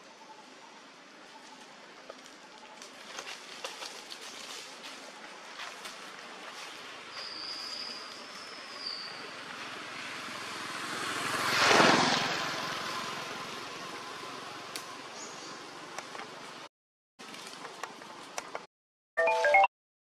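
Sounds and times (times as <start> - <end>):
forest background: 0.0 - 19.7
motor vehicle passing by: 8.2 - 16.7.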